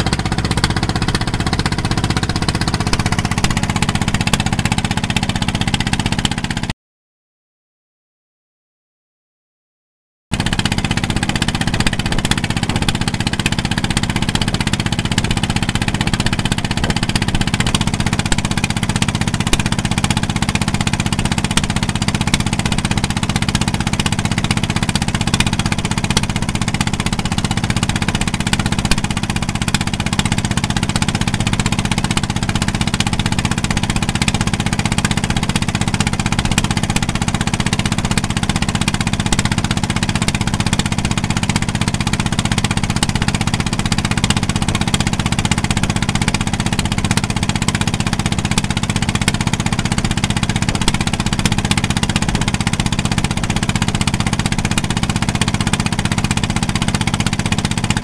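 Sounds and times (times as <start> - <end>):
boat engine droning: 0.0 - 6.7, 10.3 - 58.0.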